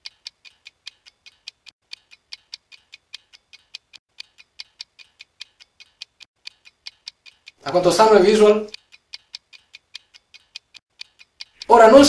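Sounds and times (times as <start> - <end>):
clock ticking fast: 0.0 - 12.0.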